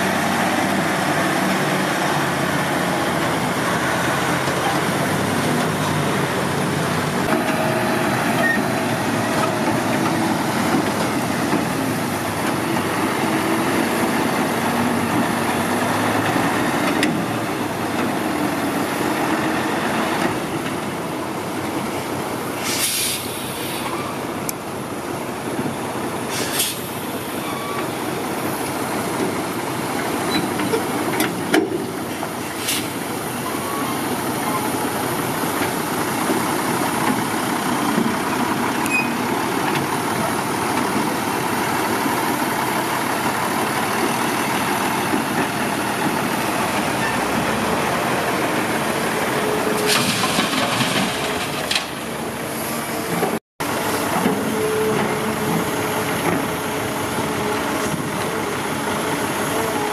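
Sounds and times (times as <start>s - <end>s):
dump truck engine running: 0.0s - 59.9s
road noise: 0.0s - 59.9s
short hiss: 22.6s - 23.9s, 26.3s - 26.9s.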